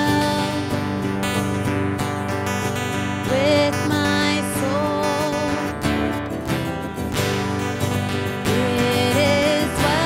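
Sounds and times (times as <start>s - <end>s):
held melody line: 0.0s - 10.0s.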